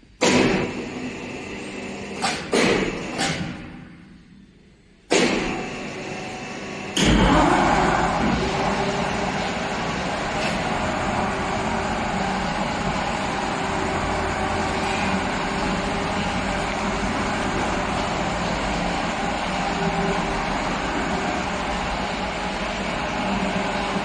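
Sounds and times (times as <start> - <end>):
laminating machine humming: 5.2 - 24.0.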